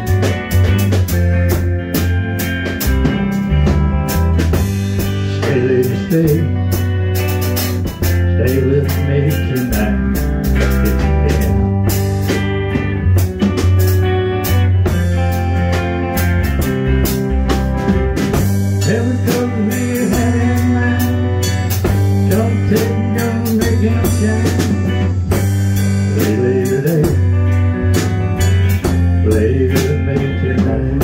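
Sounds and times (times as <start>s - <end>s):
bass line: 0.0s - 31.0s
blues-rock guitar: 0.0s - 31.0s
steady drum beat: 0.0s - 31.0s.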